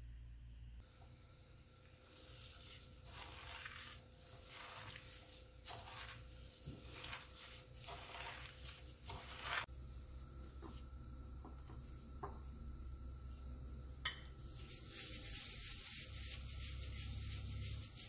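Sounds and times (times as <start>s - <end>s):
plastic glove crinkling: 1.8s - 9.7s
wet squishes of kneaded meat: 1.8s - 9.7s.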